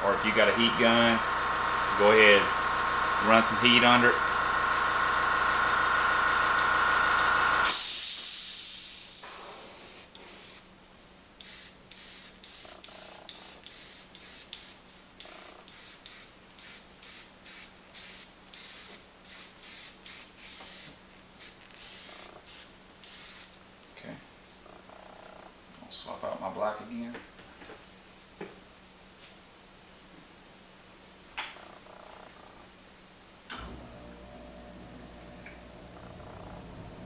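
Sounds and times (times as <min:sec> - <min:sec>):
air compressor cutting off: 0:00.0 - 0:10.0, 0:33.4 - 0:37.0
airbrush spraying air: 0:00.0 - 0:10.7, 0:11.4 - 0:23.6, 0:27.6 - 0:31.4, 0:32.6 - 0:33.5.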